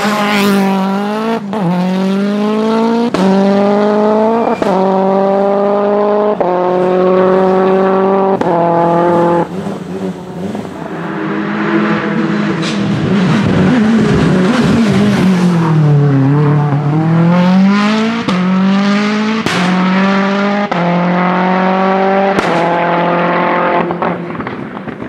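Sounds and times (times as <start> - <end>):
car engine accelerating hard: 0.0 - 24.6
exhaust bangs: 0.0 - 25.0.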